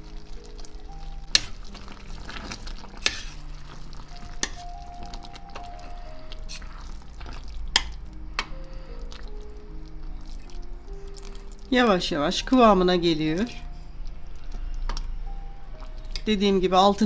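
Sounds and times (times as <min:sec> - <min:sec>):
bubbling syrup sizzling: 0:00.0 - 0:17.0.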